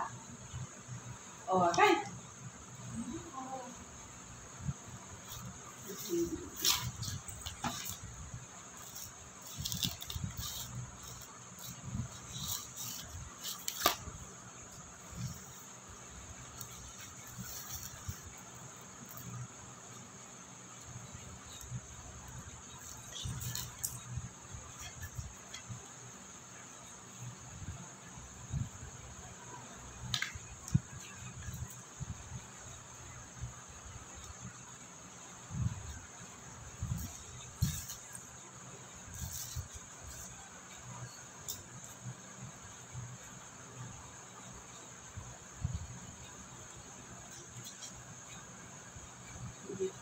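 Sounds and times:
crickets chirping: 0:00.0 - 0:50.0
paper rustling: 0:05.2 - 0:08.1, 0:08.7 - 0:15.6, 0:16.5 - 0:18.4.

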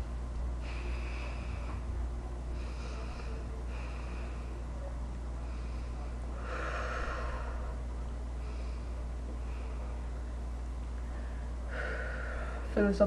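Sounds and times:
steady low hum: 0:00.0 - 0:13.0
boy breathing heavily through nose: 0:00.6 - 0:04.8, 0:05.4 - 0:07.8, 0:11.1 - 0:12.8.

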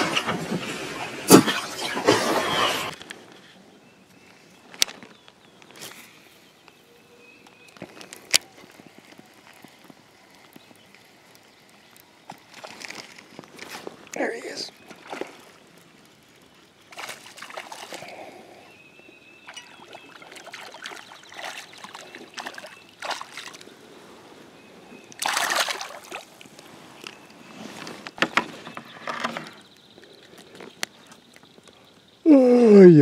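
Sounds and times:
water splashing and sloshing: 0:00.0 - 0:03.0, 0:12.4 - 0:18.7, 0:19.4 - 0:29.3.

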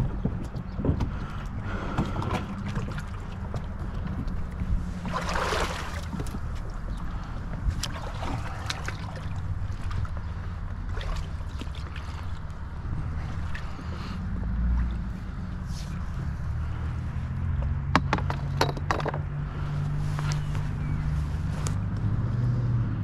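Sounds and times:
paddle splashing in water: 0:01.7 - 0:04.0, 0:04.7 - 0:15.0.

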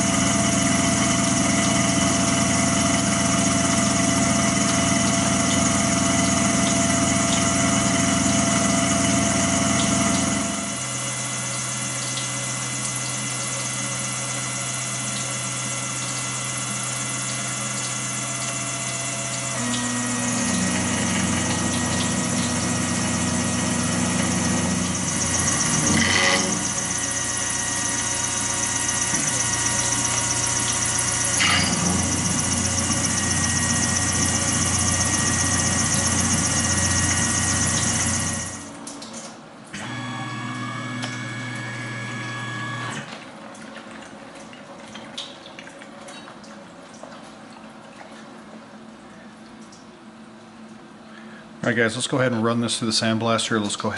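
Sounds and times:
milling machine hum: 0:00.0 - 0:39.0, 0:39.7 - 0:43.5
coolant dripping: 0:00.0 - 0:39.7, 0:43.2 - 0:51.3
coolant flowing: 0:00.0 - 0:52.3.

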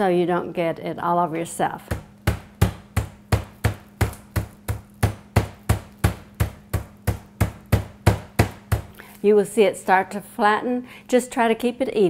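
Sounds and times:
meat mallet pounding chicken: 0:01.9 - 0:09.0.

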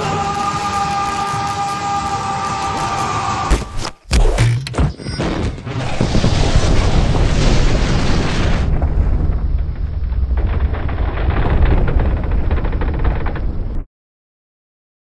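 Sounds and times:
cartoon explosion rumbling blast: 0:05.2 - 0:13.9.

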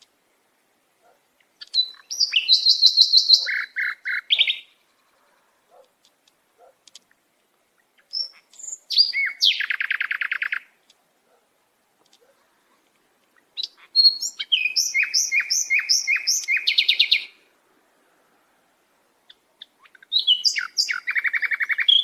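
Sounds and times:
songbird singing with trills: 0:01.4 - 0:05.2, 0:07.0 - 0:11.0, 0:13.3 - 0:17.5, 0:19.2 - 0:22.0.

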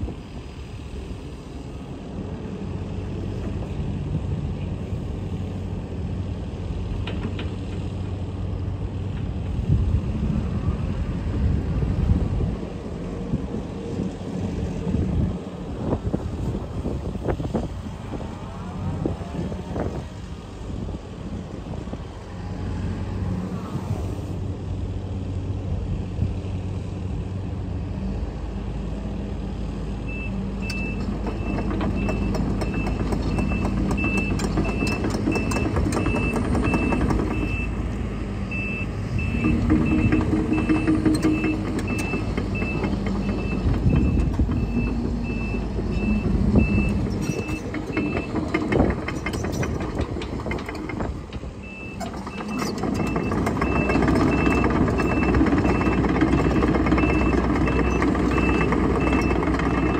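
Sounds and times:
excavator diesel engine running: 0:00.0 - 0:59.9
machine clanks and rattles: 0:30.6 - 0:37.8, 0:39.1 - 0:59.9.

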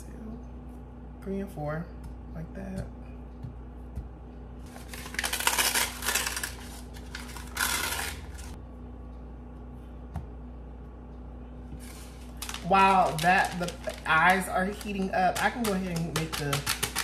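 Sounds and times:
paper wrapper tearing and crinkling: 0:04.7 - 0:08.6, 0:11.8 - 0:17.0.

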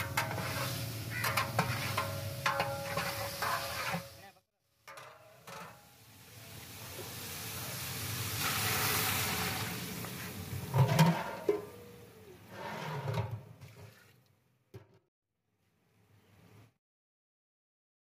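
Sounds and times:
water sizzling in hot pot: 0:00.0 - 0:04.3, 0:05.2 - 0:11.7.

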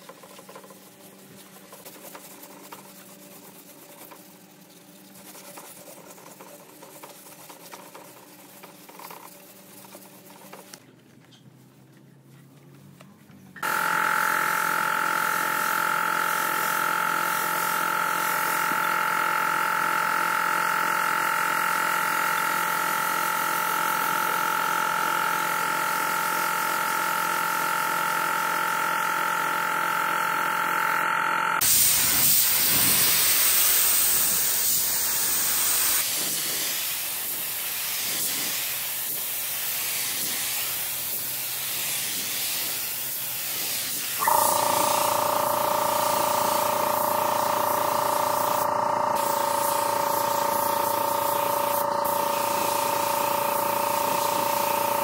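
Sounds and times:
paint spray gun air hissing: 0:14.4 - 0:19.5, 0:31.6 - 0:55.0.

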